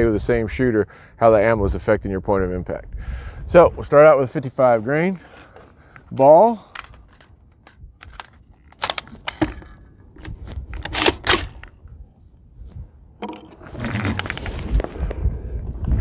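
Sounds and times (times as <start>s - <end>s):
wind rumble on microphone: 1.4s - 4.1s, 7.7s - 16.0s
rifle metallic clicks: 6.7s - 11.8s.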